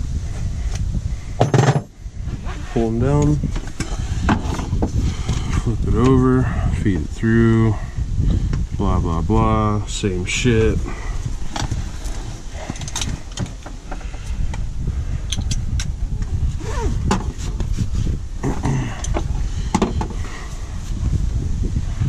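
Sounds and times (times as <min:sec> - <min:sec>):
steady low rumble: 0:00.0 - 0:22.0
straps rustling and sliding: 0:11.4 - 0:13.6.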